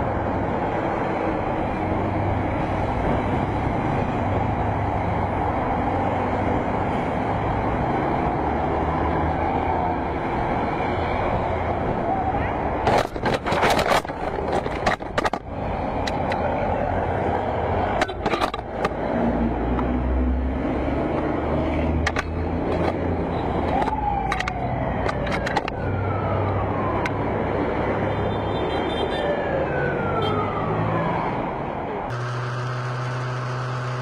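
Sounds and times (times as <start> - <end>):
road traffic noise: 0.0 - 34.0
motor humming: 32.1 - 34.0.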